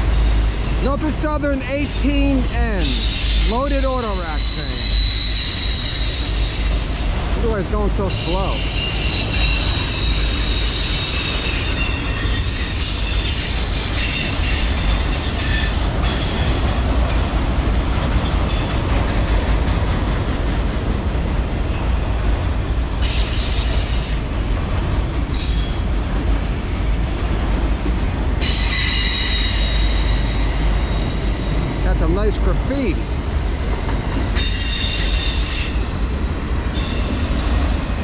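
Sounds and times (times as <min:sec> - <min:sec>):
freight cars rumbling on rails: 0:00.0 - 0:38.0
steel wheel squeal: 0:01.8 - 0:16.5, 0:28.4 - 0:31.5.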